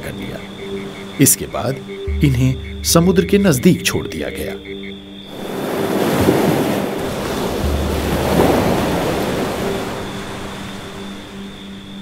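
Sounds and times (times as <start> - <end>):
faint background music drone: 0.0 - 12.0
wave breaking on beach: 5.4 - 10.7.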